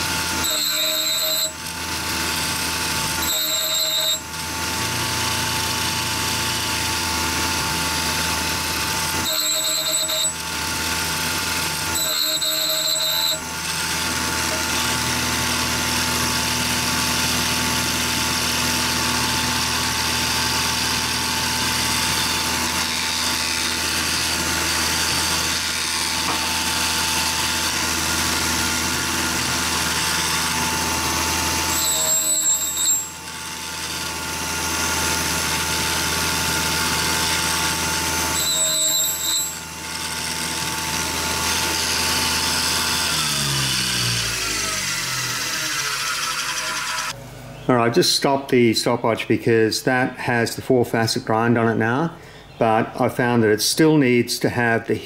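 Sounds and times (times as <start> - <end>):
grinder motor whining: 0.0 - 47.2
wheel grinding drill bit: 0.0 - 47.2.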